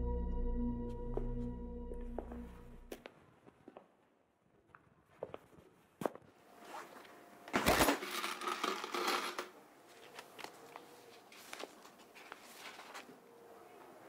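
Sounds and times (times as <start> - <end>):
paper envelope rustling: 7.6 - 13.2
coins rattling in plastic jar: 7.9 - 9.5.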